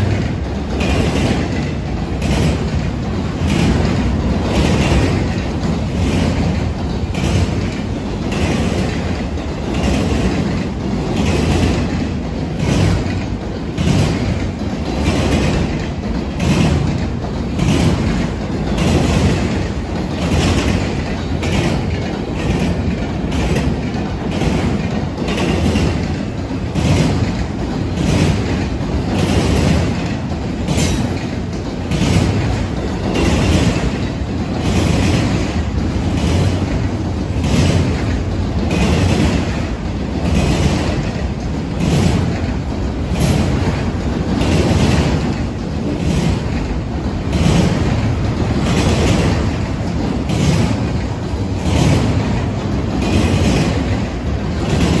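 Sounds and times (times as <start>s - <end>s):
freight train rumble: 0.0s - 55.0s
wheels clacking on rail joints: 0.0s - 55.0s.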